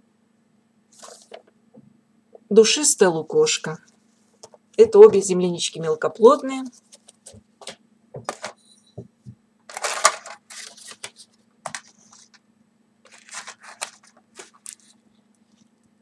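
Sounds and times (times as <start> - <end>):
paper packets rustling: 0.9 - 1.5, 9.7 - 12.4, 13.0 - 15.7.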